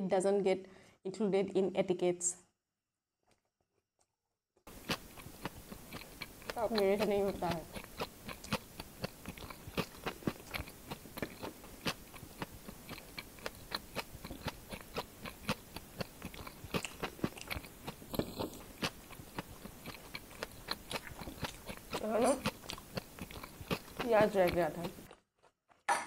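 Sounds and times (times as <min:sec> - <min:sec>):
wet mouth clicks: 0:04.7 - 0:25.1
crunchy snack chewing: 0:04.7 - 0:25.9.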